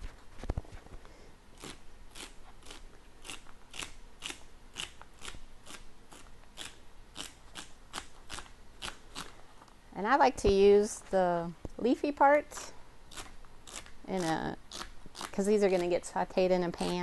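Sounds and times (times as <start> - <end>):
knife slicing celery: 1.6 - 9.3, 16.7 - 17.0.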